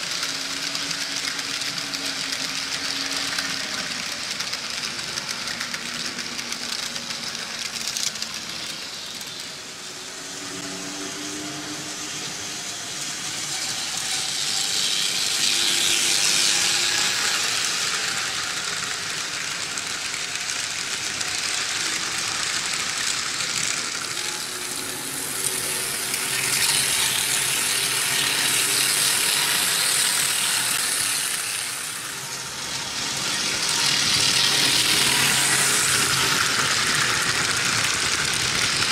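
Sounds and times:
model train wheels rattling on track: 0.0s - 38.9s.

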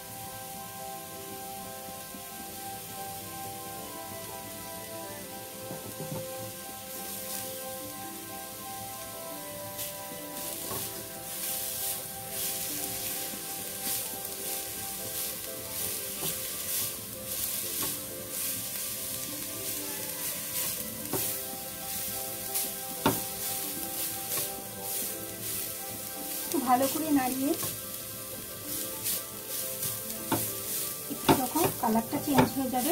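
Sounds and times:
carrots sizzling in a pan: 0.0s - 32.9s
spatula scraping a pan: 9.7s - 32.9s.

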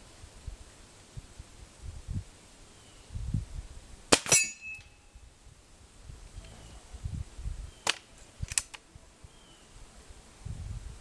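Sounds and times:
sharp clicks: 7.8s - 8.8s.

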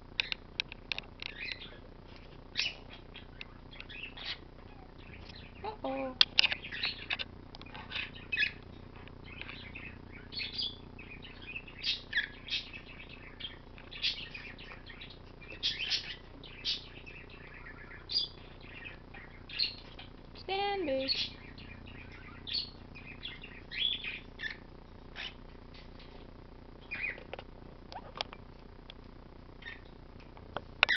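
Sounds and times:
birds chirping: 0.1s - 26.2s, 26.8s - 28.5s, 29.6s - 30.0s.

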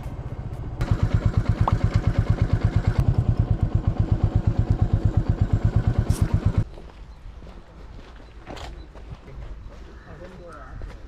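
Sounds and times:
motorcycle engine idling: 0.8s - 6.6s.

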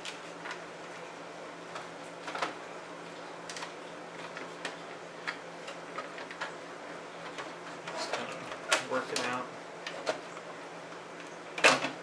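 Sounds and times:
clicks of handling computer parts: 7.2s - 10.2s.

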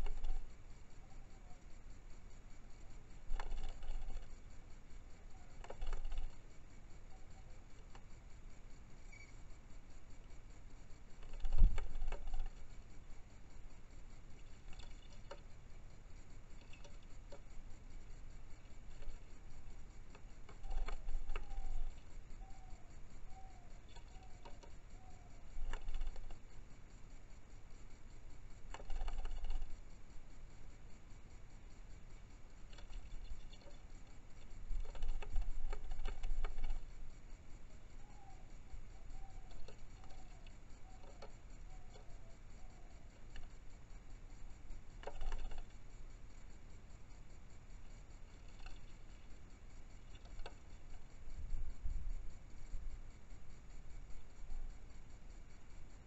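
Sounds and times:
wing flutter: 0.0s - 56.0s.

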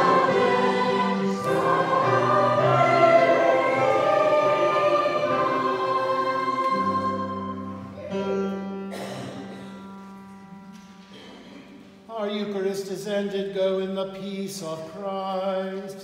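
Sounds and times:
voices singing a hymn: 0.0s - 8.6s
held organ chord: 0.0s - 11.0s.

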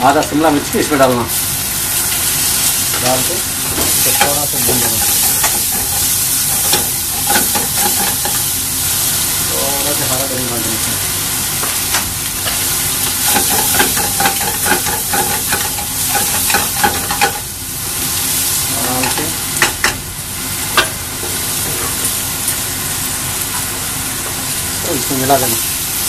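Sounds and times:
food sizzling in hot oil: 0.0s - 26.0s
spatula knocking on pan: 3.8s - 8.4s, 13.3s - 17.5s.

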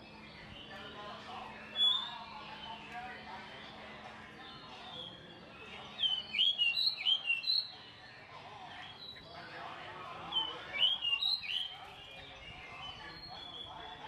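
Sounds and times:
songbird whistling: 1.7s - 2.5s, 6.0s - 7.7s, 10.4s - 13.8s.

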